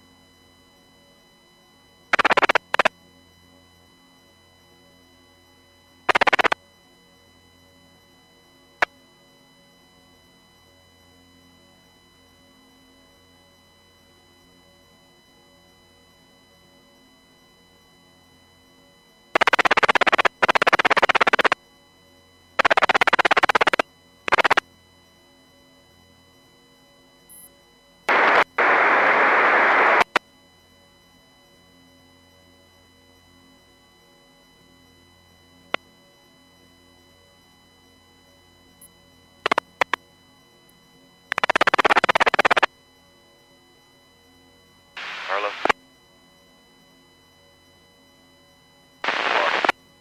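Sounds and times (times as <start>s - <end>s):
faint steady hum: 0.0s - 50.0s
radio rapid pulsing buzz: 2.1s - 2.9s, 6.1s - 6.6s, 19.4s - 21.6s, 22.6s - 24.6s, 28.1s - 30.2s, 39.4s - 40.0s, 41.3s - 42.7s, 45.0s - 45.8s, 49.0s - 49.8s
sharp clicks: 2.2s - 2.9s, 6.1s - 6.6s, 19.4s - 21.6s, 22.6s - 24.6s, 39.4s - 40.0s, 41.3s - 42.7s.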